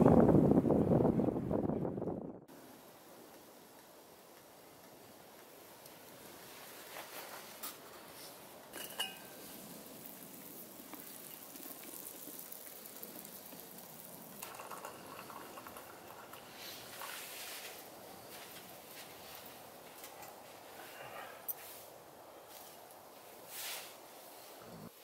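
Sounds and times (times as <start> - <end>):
stove fire crackling: 0.0 - 25.0
stew simmering and bubbling: 2.4 - 25.0
liquid pouring into cup: 9.0 - 18.0.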